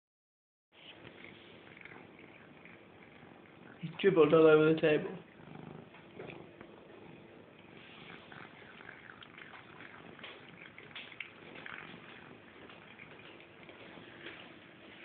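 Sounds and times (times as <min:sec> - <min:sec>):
cat chewing and smacking: 0:01.0 - 0:04.1, 0:07.6 - 0:15.0.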